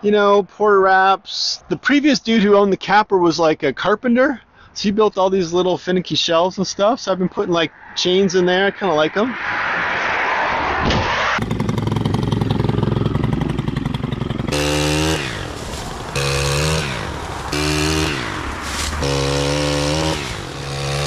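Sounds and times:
pole saw engine revving: 11.3s - 21.0s.

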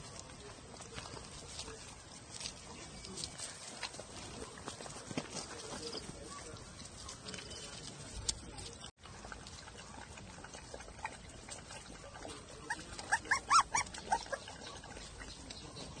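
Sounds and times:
puppies whimpering: 9.9s - 16.0s.

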